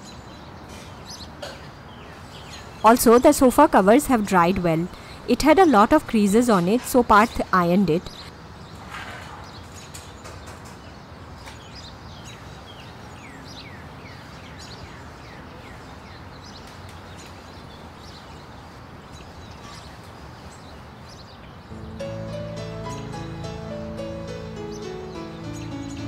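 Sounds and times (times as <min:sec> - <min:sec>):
small birds chirping: 0:00.0 - 0:08.8, 0:09.4 - 0:26.0
steady background hiss: 0:16.8 - 0:26.0.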